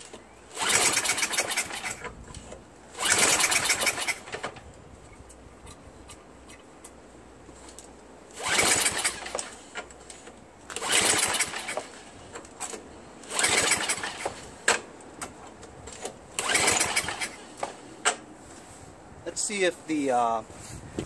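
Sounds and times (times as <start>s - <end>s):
recoil starter rope whir and cranking: 0.0s - 6.6s, 8.3s - 14.9s, 15.8s - 18.2s.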